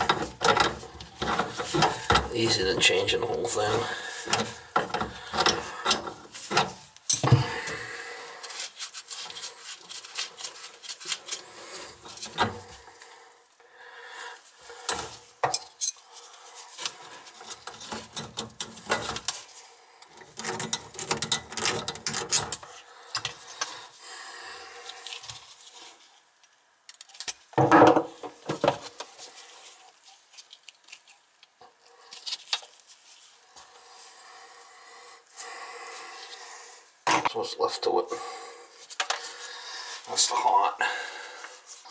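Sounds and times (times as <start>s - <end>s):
wrench clicking and scraping metal: 4.2s - 7.3s, 14.8s - 16.0s, 20.0s - 23.4s.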